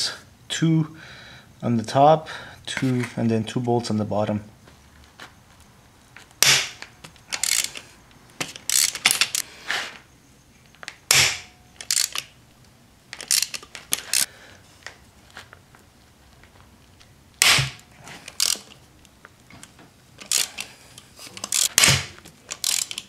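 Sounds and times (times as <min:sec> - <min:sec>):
bolts breaking loose cracks: 0:06.2 - 0:07.8, 0:21.4 - 0:23.0
ratchet clicking: 0:07.3 - 0:07.8, 0:08.5 - 0:09.4, 0:11.2 - 0:12.3, 0:13.2 - 0:14.3, 0:18.3 - 0:18.8, 0:20.2 - 0:20.7, 0:21.4 - 0:21.9, 0:22.5 - 0:23.0.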